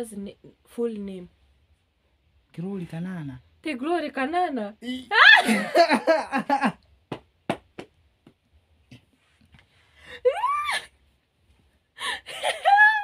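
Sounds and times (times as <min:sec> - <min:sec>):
person squealing: 0:10.2 - 0:10.9.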